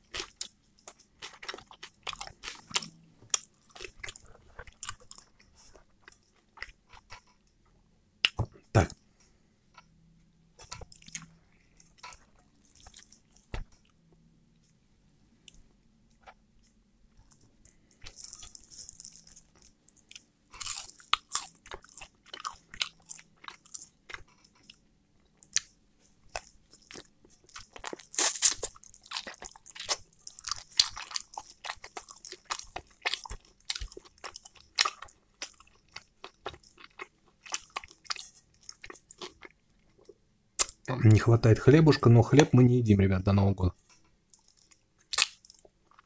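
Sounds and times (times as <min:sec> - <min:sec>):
chewing and biting chicken: 0:26.3 - 0:40.8.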